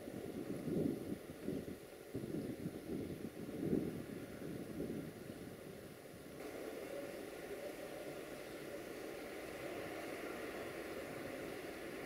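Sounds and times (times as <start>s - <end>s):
distant freight train rolling: 3.3s - 12.0s.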